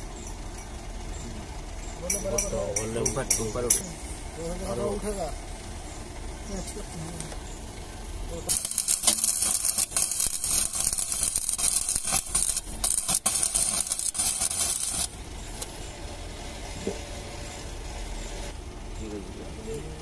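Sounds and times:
low background hum: 0:00.0 - 0:20.0
welding arc crackling: 0:08.3 - 0:15.7.

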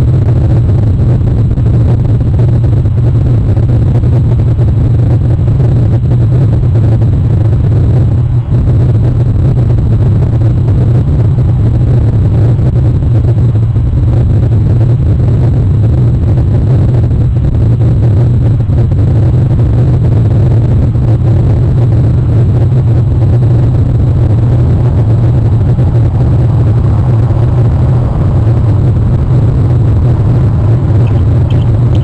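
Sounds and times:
steady low rumble: 0:00.0 - 0:32.0
faint high chirps: 0:31.0 - 0:32.0.

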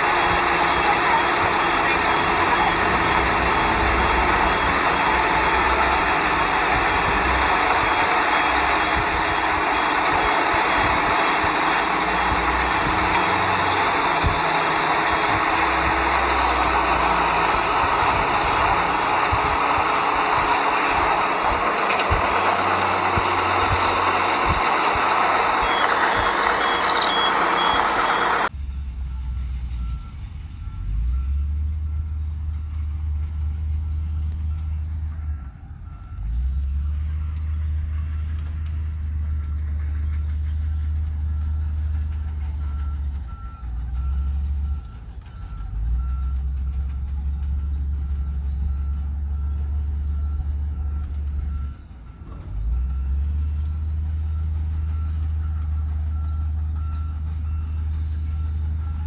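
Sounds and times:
loud machine noise: 0:00.0 - 0:28.6
diesel engine rumble: 0:00.0 - 0:59.0
reversing alarm beeping: 0:00.0 - 0:59.0.

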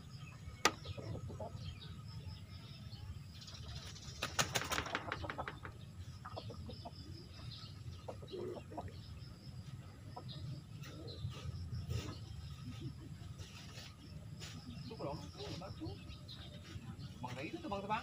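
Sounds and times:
rooster flapping wings: 0:03.8 - 0:05.8.

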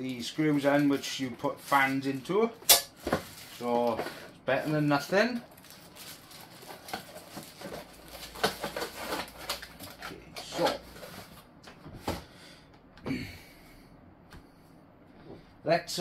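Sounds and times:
plastic bag of screws crinkling: 0:05.5 - 0:09.1.

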